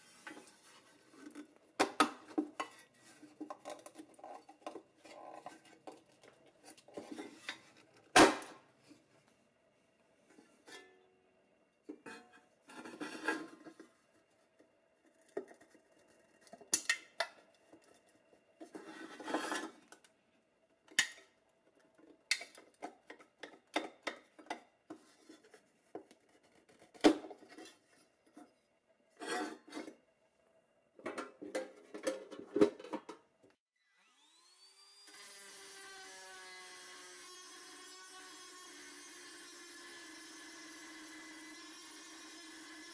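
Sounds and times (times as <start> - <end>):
small power tool whining: 33.8 - 42.9.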